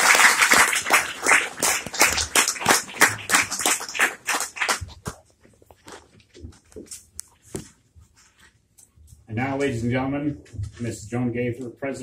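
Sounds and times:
small audience applauding: 0.0 - 5.2.

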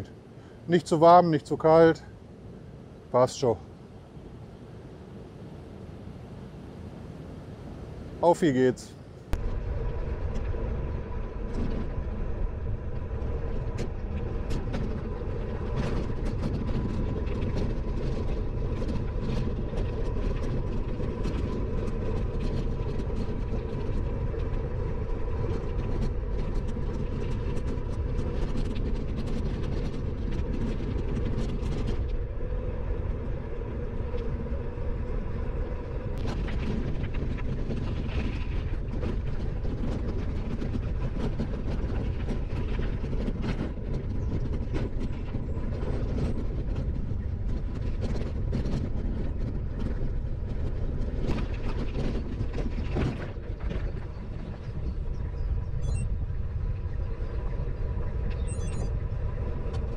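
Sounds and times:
faint steady whine: 0.0 - 59.9
bicycle tyres rolling: 9.3 - 59.9
bike rattling and ticking: 9.4 - 56.5.

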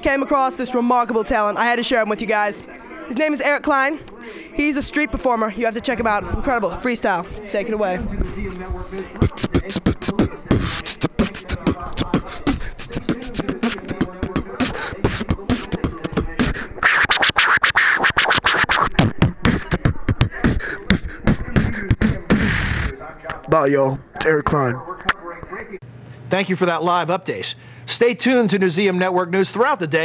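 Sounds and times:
beatboxing: 8.0 - 23.5.

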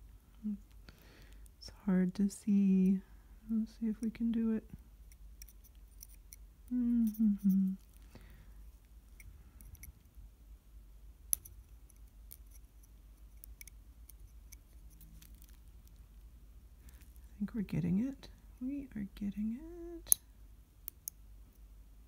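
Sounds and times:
craft knife scraping resin: 5.1 - 6.4, 11.4 - 15.6.

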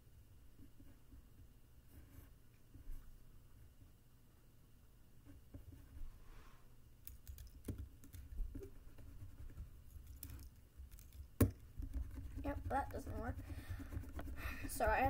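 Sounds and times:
pencil tapping on paper: 7.1 - 15.0.

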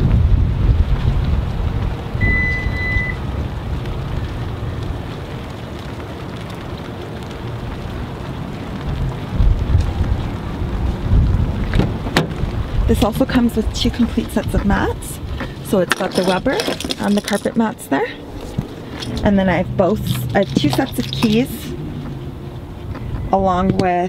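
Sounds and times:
wind buffeting microphone: 0.0 - 24.0
high electronic beep: 2.2 - 3.2.

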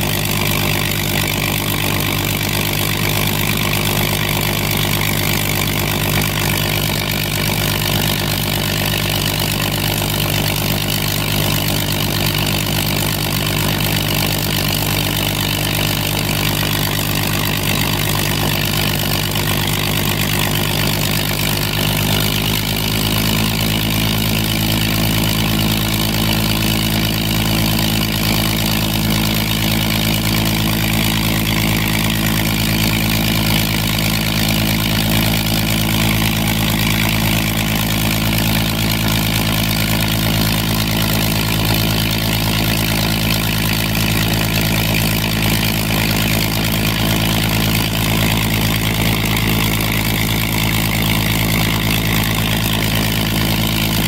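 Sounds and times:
aircraft piston engine running: 0.0 - 54.0.

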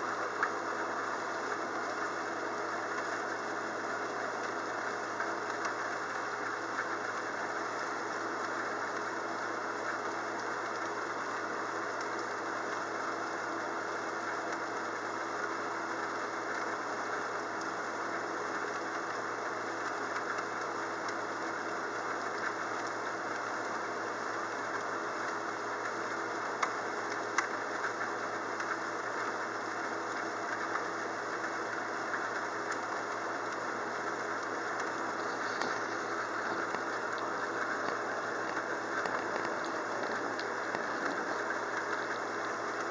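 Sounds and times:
steady rain: 0.0 - 42.9
faint low hum: 34.1 - 42.9.

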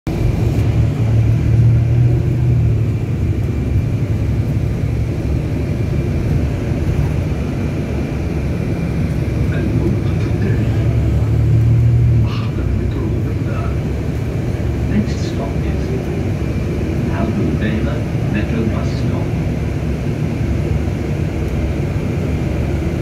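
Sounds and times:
engine and road rumble: 0.0 - 23.0.

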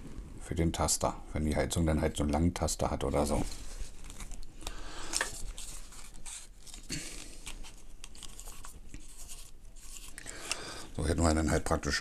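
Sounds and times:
rustling: 3.2 - 10.6.

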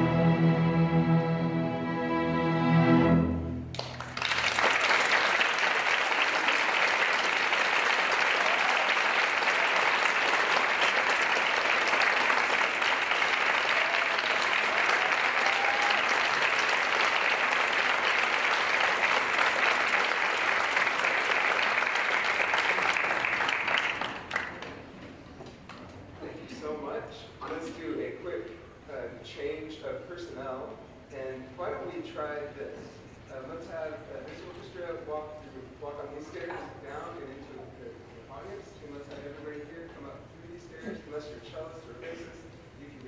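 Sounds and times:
string orchestra chord: 0.0 - 3.9
audience applause: 3.7 - 25.0.

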